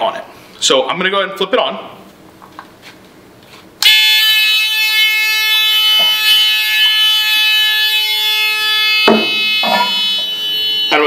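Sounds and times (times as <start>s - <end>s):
electronic alarm tone: 3.8s - 11.0s.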